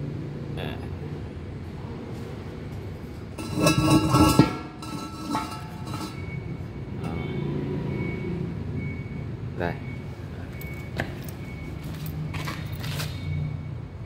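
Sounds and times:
metallic clanking and ringing: 0:03.4 - 0:07.4.

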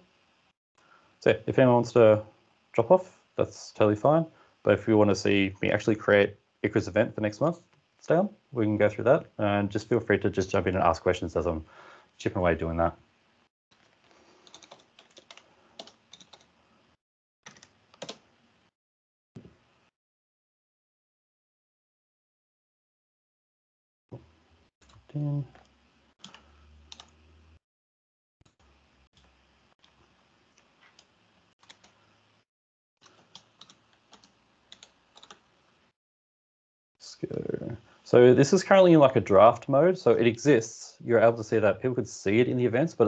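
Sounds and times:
faint computer keyboard typing: 0:14.3 - 0:16.6, 0:17.4 - 0:18.3, 0:24.8 - 0:27.2, 0:30.6 - 0:32.0, 0:33.0 - 0:35.4.

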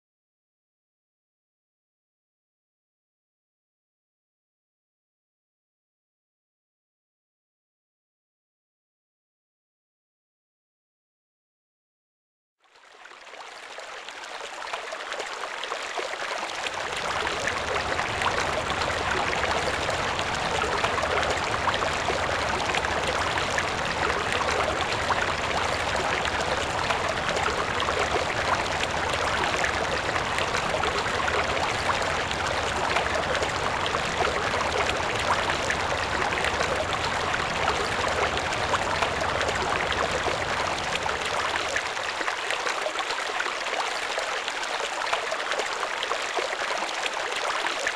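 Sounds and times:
running water rushing: 0:13.2 - 0:47.9.

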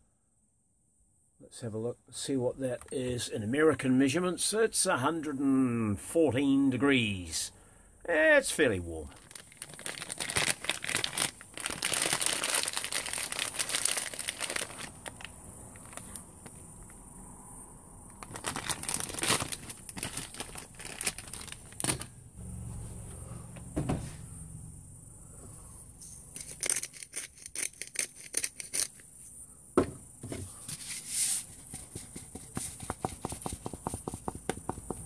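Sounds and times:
plastic bag rustling: 0:09.1 - 0:16.6, 0:18.2 - 0:22.2.

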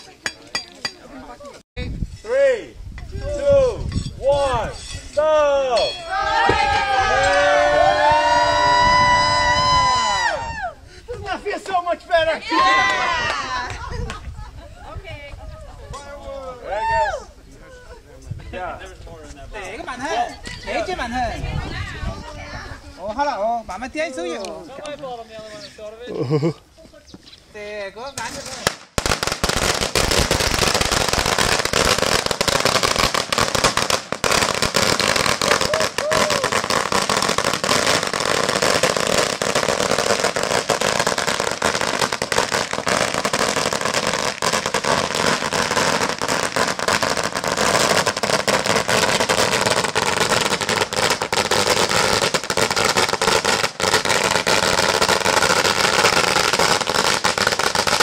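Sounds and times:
firecrackers crackling: 0:28.2 - 0:58.0.

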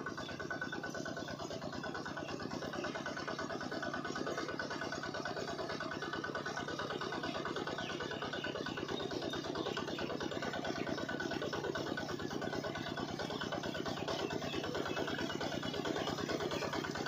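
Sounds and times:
miniature engine chattering: 0:00.0 - 0:17.0.

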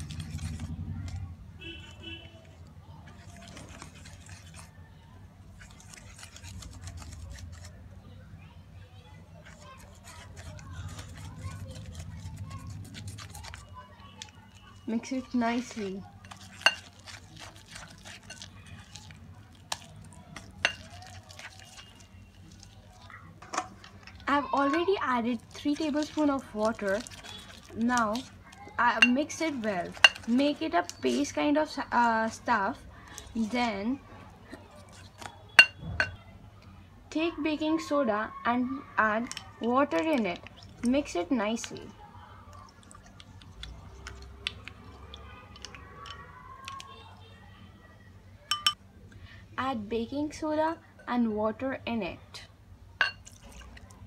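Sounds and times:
whisk stirring thick batter: 0:00.0 - 0:07.9, 0:09.2 - 0:35.8
whisk tapping glass bowl: 0:28.9 - 0:30.5, 0:35.6 - 0:36.1, 0:48.5 - 0:48.8, 0:53.0 - 0:53.2
spoon clicking against bowl: 0:48.5 - 0:48.8.

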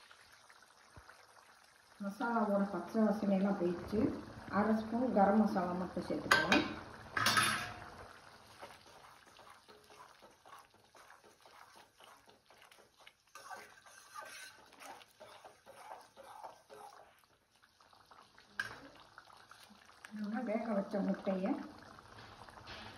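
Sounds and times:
gravy simmering and bubbling: 0:00.0 - 0:22.9
spoon stirring in a pot: 0:06.0 - 0:22.9.

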